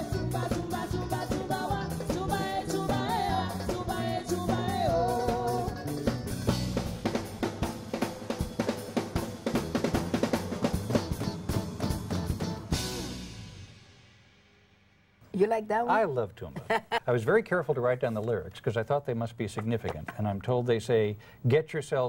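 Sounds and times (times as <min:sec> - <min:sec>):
woman singing: 0:00.0 - 0:05.8
fast drum beat: 0:00.0 - 0:13.6, 0:19.5 - 0:20.5
guitars and bass: 0:00.0 - 0:13.6.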